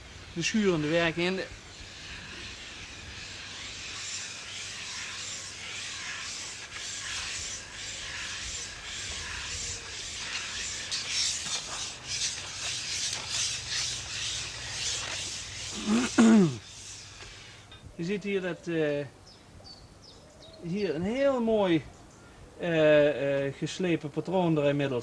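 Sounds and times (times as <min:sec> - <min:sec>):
glass plates grinding with grit: 0:01.8 - 0:17.8.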